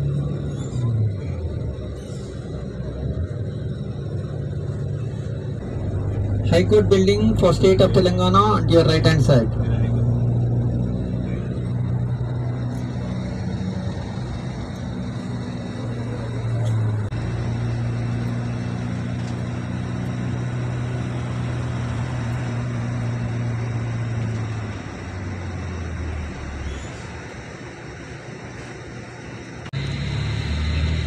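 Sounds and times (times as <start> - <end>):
bus engine droning: 0.0 - 31.0.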